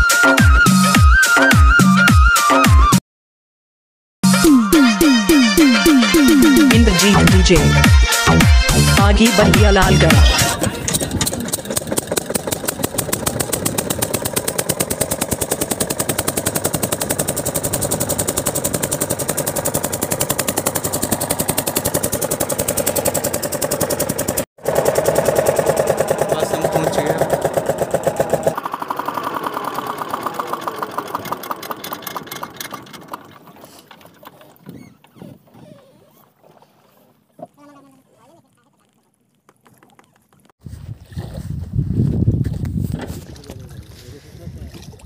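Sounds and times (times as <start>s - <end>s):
diesel engine chugging: 8.7s - 34.5s.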